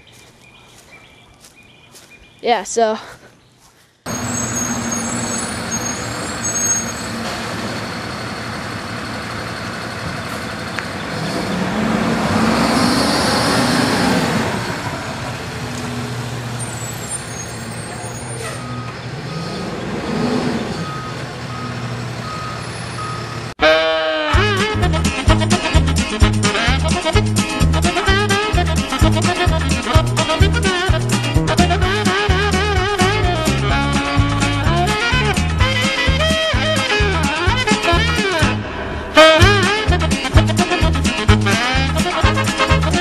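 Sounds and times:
garbage truck diesel engine revving: 4.1s - 23.6s, 24.4s - 43.0s
upbeat string-band music: 23.6s - 43.0s.

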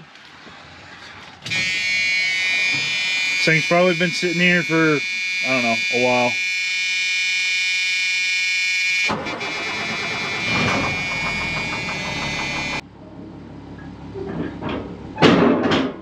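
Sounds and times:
steady high-pitched tone: 1.5s - 7.5s, 9.2s - 12.8s
diesel truck engine running: 9.1s - 13.7s.

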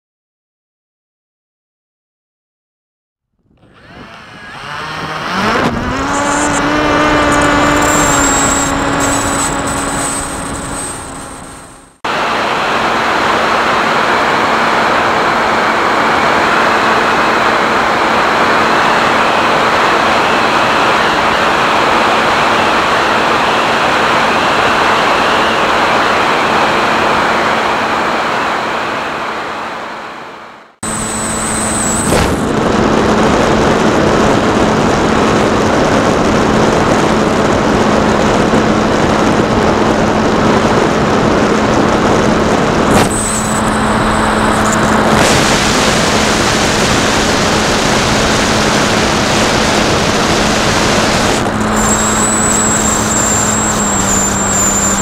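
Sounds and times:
electric motor and propeller hum: 3.4s - 30.2s, 30.8s - 55.0s
airflow rushing over microphone: 30.9s - 53.9s.

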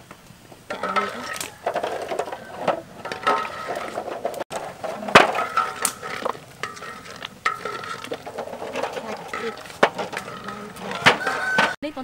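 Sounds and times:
boiling water bubbling: 0.4s - 11.8s.

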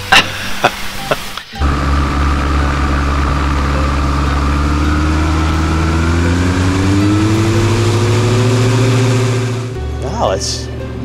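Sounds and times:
aircraft engine and propeller: 1.6s - 9.9s.

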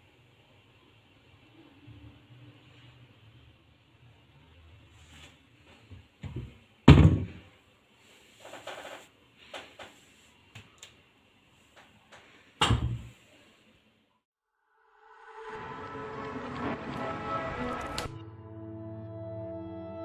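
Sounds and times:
cupboard door thudding shut: 6.9s - 7.4s.

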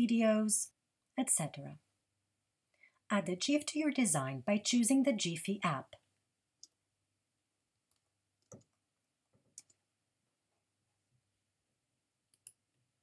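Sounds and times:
computer keystroke clicks: 12.3s - 12.6s.

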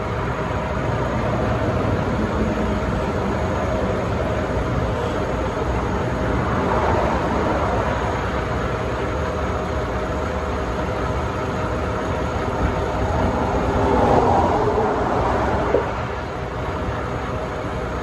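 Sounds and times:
freeway traffic rumble: 0.0s - 18.0s
vehicle passing close: 12.7s - 16.4s.

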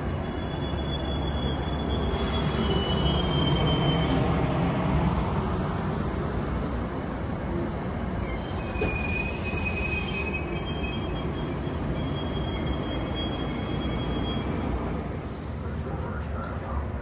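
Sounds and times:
high wheel squeals: 0.0s - 4.2s, 8.2s - 14.9s
train cars rumbling: 0.0s - 17.0s.

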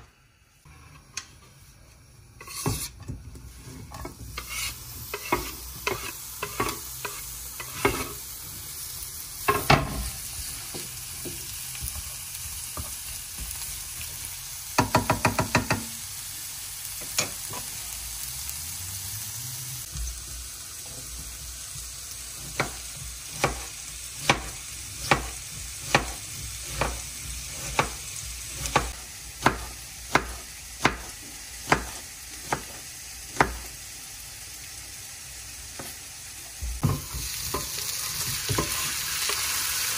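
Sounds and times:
onions sizzling in oil: 0.0s - 39.9s
wooden spatula scraping pan: 2.4s - 8.2s.

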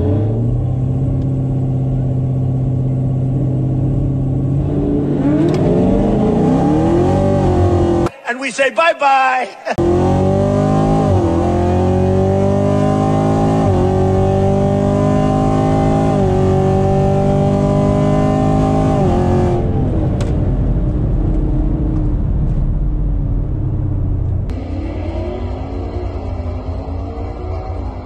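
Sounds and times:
car engine at full throttle: 0.0s - 8.1s, 9.8s - 28.0s
wind and road noise: 0.0s - 8.1s, 9.8s - 28.0s.

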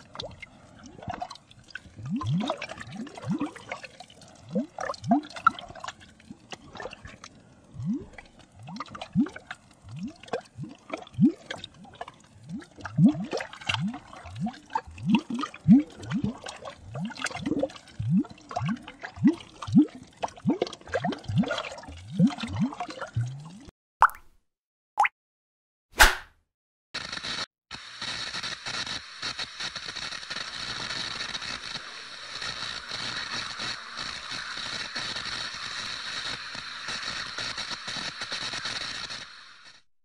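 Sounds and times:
water drips and bubbling plops: 0.0s - 24.4s
light watery hiss: 28.0s - 39.7s.

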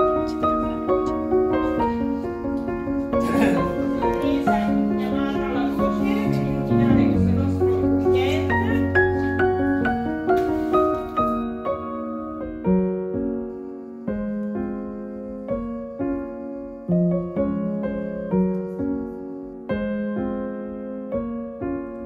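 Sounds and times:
slow gentle piano music: 0.0s - 22.0s.

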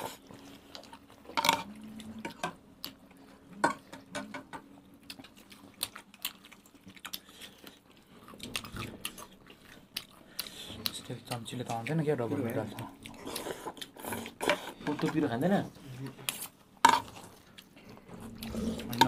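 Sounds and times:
faint low hum: 0.0s - 19.0s
chewing and slurping noodles: 5.0s - 14.8s, 16.3s - 19.0s.

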